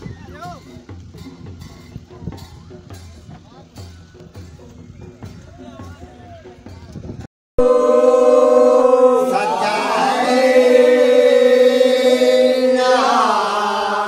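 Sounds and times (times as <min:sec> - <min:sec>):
men singing in chorus: 0:07.6 - 0:14.0.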